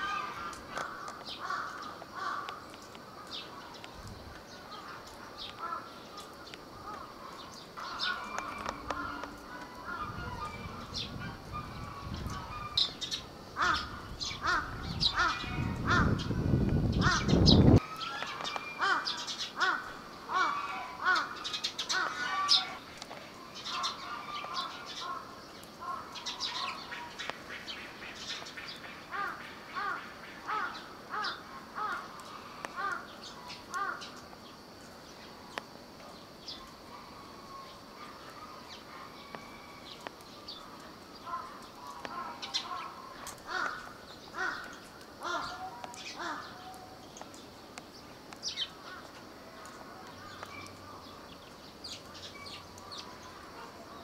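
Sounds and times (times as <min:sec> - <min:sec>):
crows cawing: 0:00.0 - 0:03.7, 0:04.7 - 0:13.0, 0:13.6 - 0:16.3, 0:17.0 - 0:22.8, 0:23.6 - 0:27.7, 0:29.0 - 0:34.2, 0:41.2 - 0:47.0, 0:48.6 - 0:51.0.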